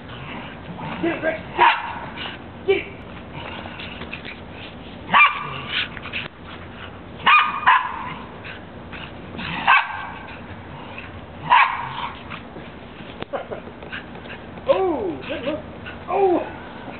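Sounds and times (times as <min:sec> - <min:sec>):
dog barking sharply: 0:07.3 - 0:08.1.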